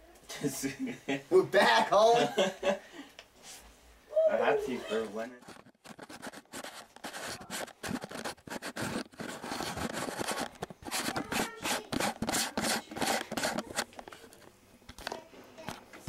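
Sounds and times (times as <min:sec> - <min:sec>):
fingers scraping camera body: 0:05.4 - 0:14.4.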